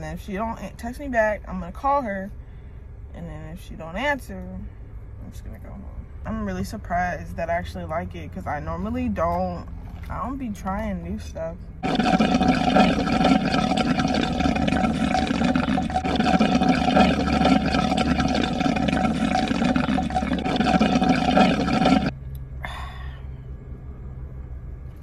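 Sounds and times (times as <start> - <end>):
slurping through a straw: 11.8 - 22.1.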